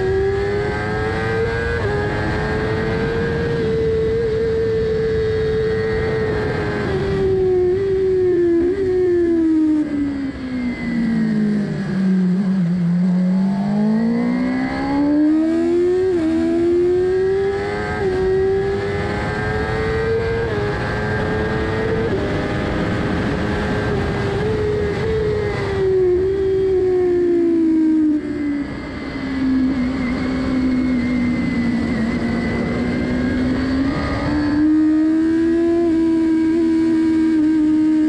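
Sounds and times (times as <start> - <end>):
motorcycle engine revving: 0.0 - 38.0
wind rush: 18.0 - 35.4.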